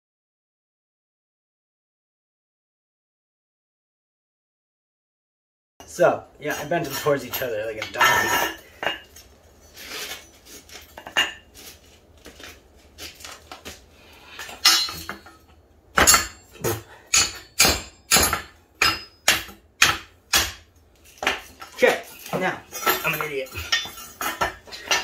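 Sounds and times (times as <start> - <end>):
hammer clanking on steel tubing: 5.8 - 9.2, 14.4 - 25.0
metal tubes clinking: 5.8 - 12.0, 14.2 - 25.0.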